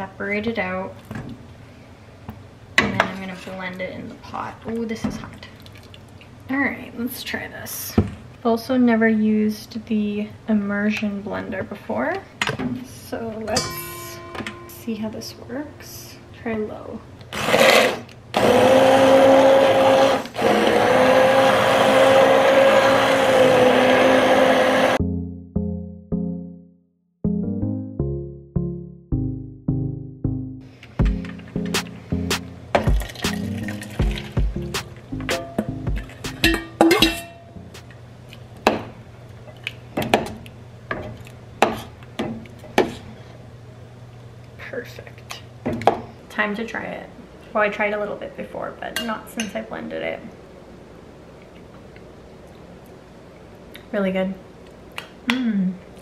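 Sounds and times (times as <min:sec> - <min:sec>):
low hum: 0:13.4 - 0:17.2
spoon clanking on metal pot: 0:13.5 - 0:14.9, 0:35.4 - 0:37.5
immersion blender churning soup: 0:17.3 - 0:25.0.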